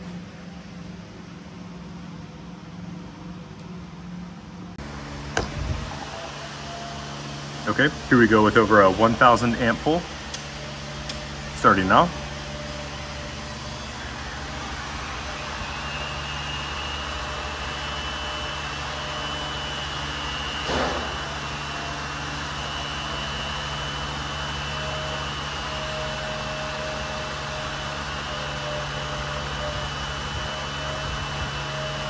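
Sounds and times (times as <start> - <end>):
fan-like rushing noise: 0.0 - 23.7
low hum: 0.0 - 32.0
thin high whine: 4.8 - 32.0.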